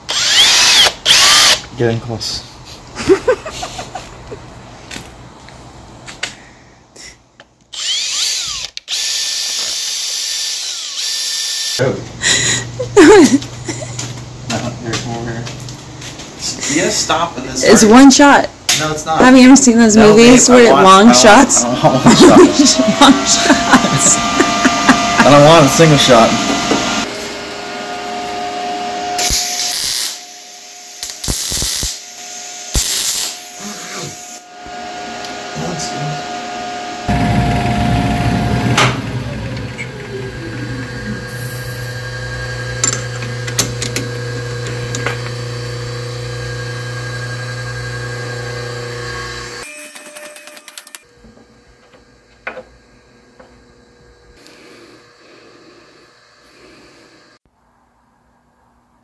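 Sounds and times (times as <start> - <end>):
cordless drill boring into metal: 0.0 - 1.7, 7.7 - 11.8
short hissing bursts: 31.1 - 32.0
steady hum: 37.0 - 44.2.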